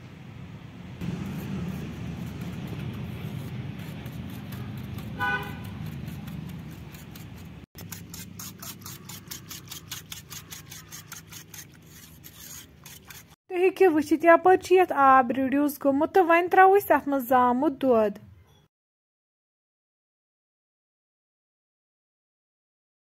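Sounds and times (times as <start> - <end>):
passing traffic rumble: 0.0 - 7.6
car horn toot: 5.2 - 5.8.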